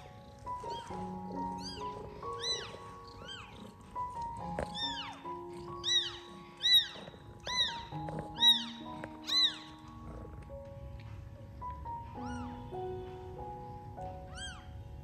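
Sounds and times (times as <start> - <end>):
kittens mewing: 0.0 - 10.6, 11.9 - 13.0, 14.2 - 15.0
soft background music: 0.0 - 15.0.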